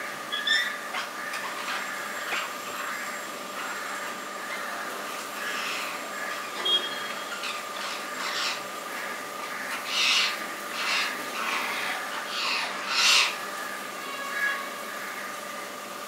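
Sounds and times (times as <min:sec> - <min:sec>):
parakeets squawking: 0:00.3 - 0:15.2.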